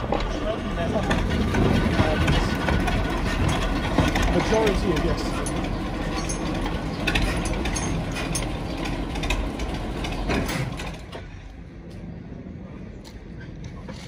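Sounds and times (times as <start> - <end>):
diesel locomotive idling: 0.0 - 14.0
sharp metallic clanks: 1.1 - 11.1.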